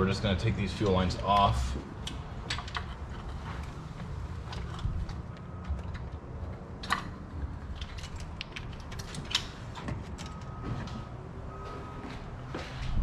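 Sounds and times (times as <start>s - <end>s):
steady low rumble: 0.0s - 9.7s.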